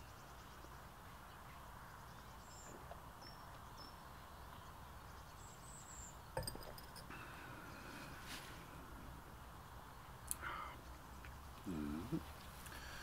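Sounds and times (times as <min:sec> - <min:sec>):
glass clinking on stone table: 0:06.4 - 0:07.1.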